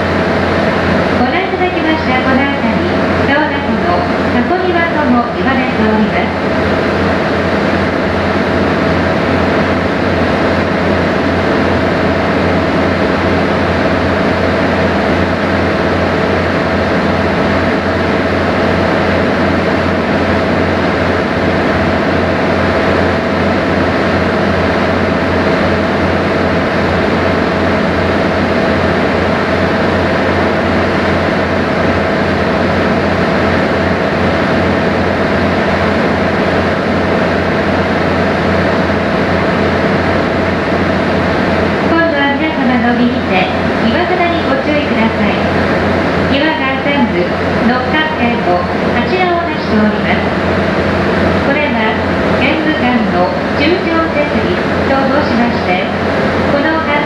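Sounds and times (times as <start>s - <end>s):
boat engine drone: 0.0s - 57.0s.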